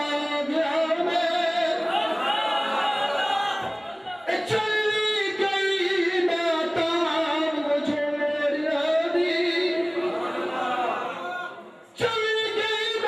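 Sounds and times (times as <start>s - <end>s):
man singing devotional verse: 0.0s - 1.9s, 4.3s - 10.0s, 12.0s - 13.0s.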